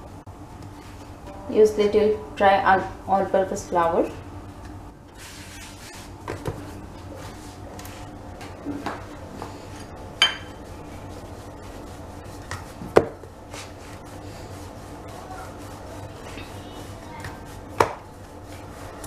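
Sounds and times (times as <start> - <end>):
rolling pin rolling dough: 5.2 - 19.0.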